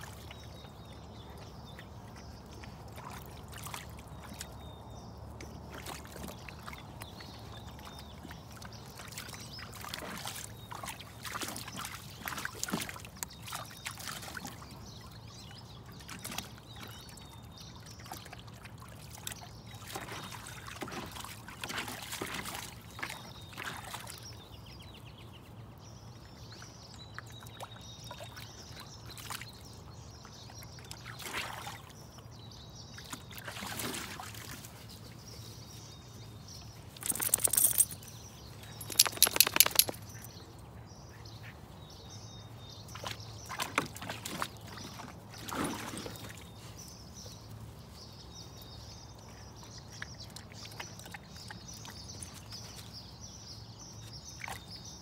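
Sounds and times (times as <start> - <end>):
water splashing in pool: 33.0 - 34.8, 42.9 - 46.4
hose trickling into pool: 33.4 - 35.2, 36.9 - 40.2.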